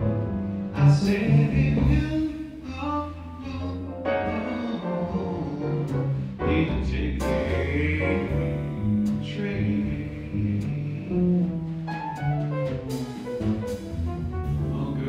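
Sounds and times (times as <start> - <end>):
piano: 0.0 - 15.0
walking double bass: 0.0 - 15.0
drums with cymbal strikes: 11.7 - 15.0.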